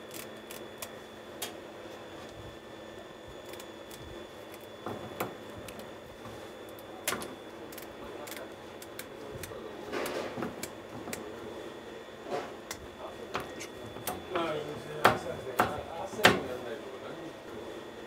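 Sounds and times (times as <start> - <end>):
scissors snipping fish fins: 6.7 - 9.6.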